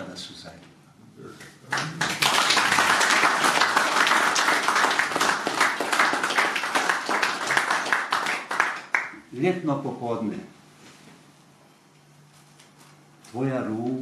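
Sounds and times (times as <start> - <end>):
audience applauding: 1.6 - 9.2.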